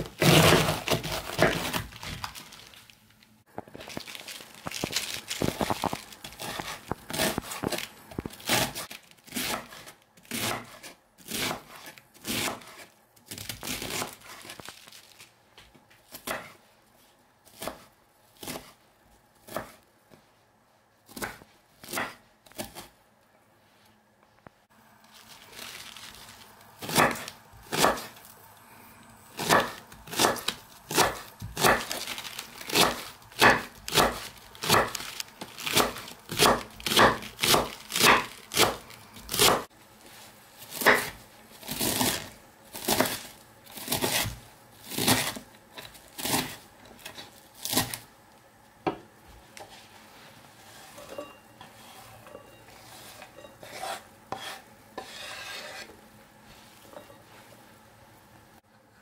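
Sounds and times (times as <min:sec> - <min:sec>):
knife slicing cabbage: 0:00.0 - 0:02.7, 0:03.8 - 0:15.2, 0:16.0 - 0:16.6, 0:17.4 - 0:18.8, 0:19.4 - 0:19.8, 0:21.1 - 0:23.0, 0:25.2 - 0:28.3, 0:29.3 - 0:39.7, 0:40.6 - 0:48.1, 0:50.7 - 0:55.9.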